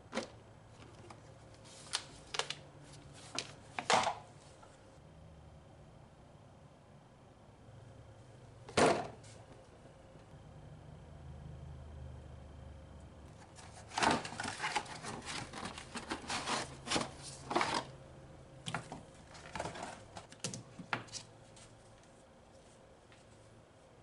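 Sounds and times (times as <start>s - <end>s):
paper air filters rustling: 0.1s - 4.7s, 13.3s - 18.0s, 18.7s - 23.5s.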